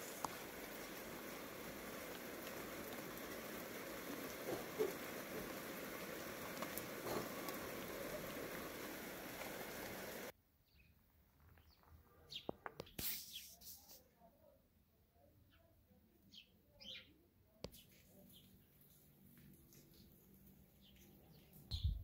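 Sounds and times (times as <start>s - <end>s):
rain falling: 0.0s - 10.3s, 17.9s - 21.8s.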